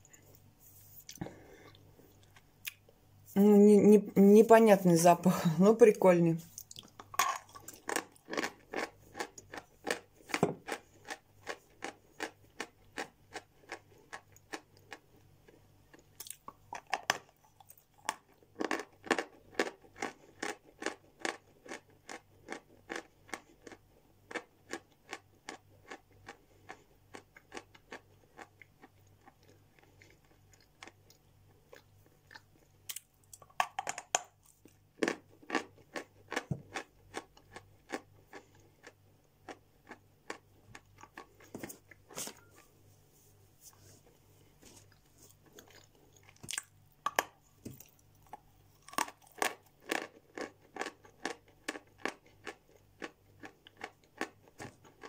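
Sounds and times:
person chewing chalk crunching: 6.5s - 33.4s, 34.4s - 42.7s, 44.0s - 55.0s.

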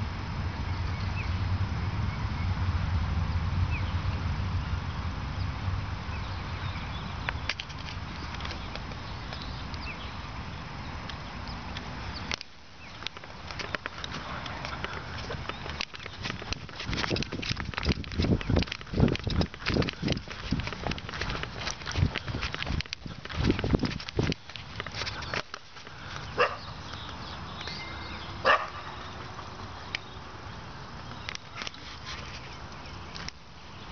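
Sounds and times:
wind rumbling on microphone: 0.0s - 33.9s
sharp clicks: 11.0s - 26.3s
dog barking: 26.4s - 26.7s, 28.4s - 28.9s
short high bird chirps: 27.5s - 28.5s.

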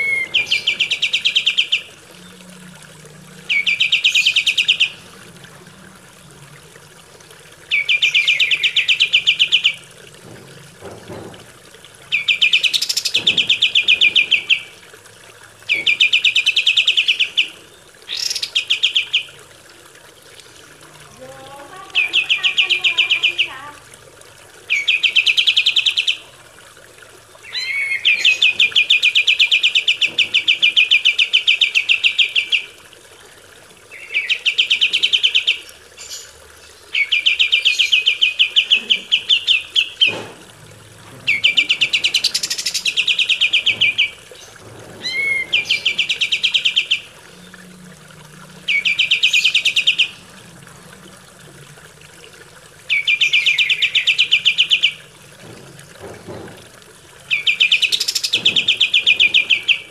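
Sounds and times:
bird singing rattling trills: 0.0s - 2.5s, 3.4s - 5.1s, 7.7s - 9.9s, 12.1s - 14.8s, 21.1s - 23.8s, 24.7s - 26.3s, 41.2s - 47.8s, 48.7s - 50.2s, 52.9s - 55.1s, 57.3s - 59.9s.

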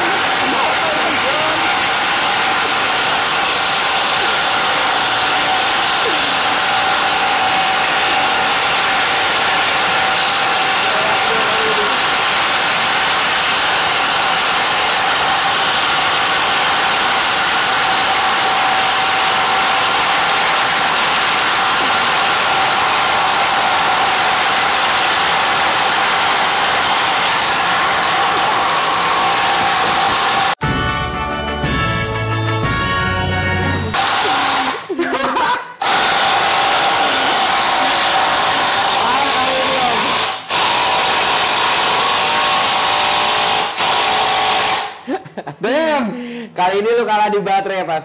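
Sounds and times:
impact drivers driving into wood: 40.1s - 44.9s.

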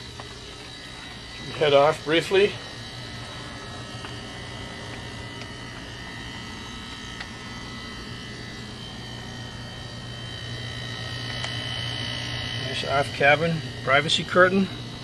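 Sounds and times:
air conditioning unit humming: 0.0s - 15.0s
high steady whine: 0.0s - 15.0s.

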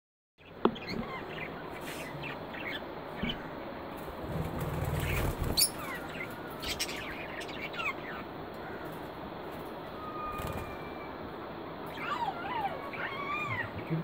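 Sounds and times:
wavering whistled bird call: 9.9s - 11.2s.

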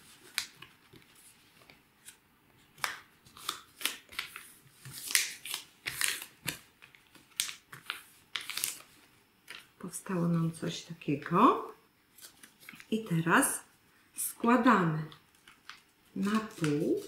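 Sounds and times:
paper being folded by hand: 0.0s - 9.8s, 12.1s - 13.2s, 15.1s - 17.0s.

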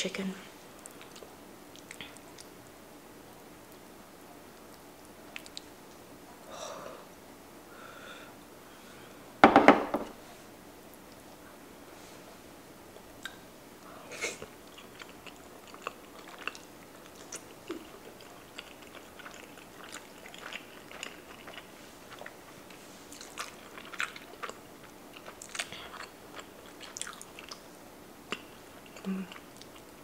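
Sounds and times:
person chewing food: 0.8s - 2.6s, 4.6s - 5.7s, 14.4s - 27.7s, 28.3s - 30.0s.

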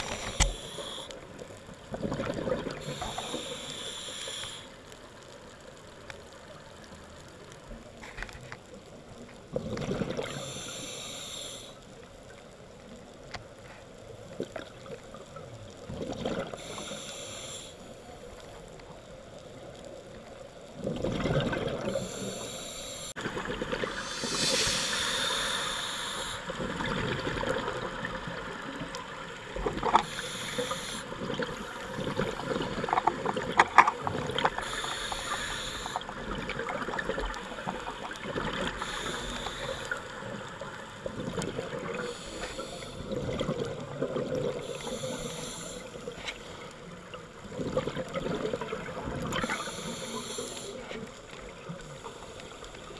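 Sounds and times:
watery rumble: 0.0s - 10.7s, 12.2s - 17.1s, 17.9s - 52.9s
regulator exhaust bubbles hissing: 21.2s - 28.0s.

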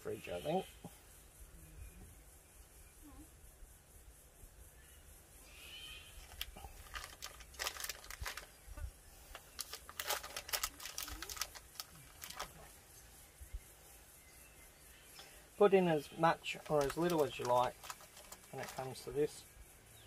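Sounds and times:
wrapper crinkling: 6.2s - 8.6s, 9.3s - 12.7s, 16.6s - 19.0s.

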